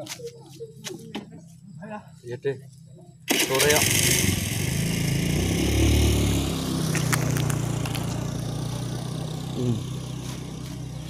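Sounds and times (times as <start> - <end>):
motorcycle engine revving: 3.2 - 11.0.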